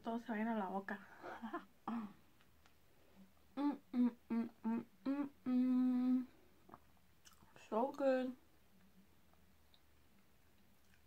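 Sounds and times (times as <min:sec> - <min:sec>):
woman humming while chewing: 0:03.6 - 0:06.4.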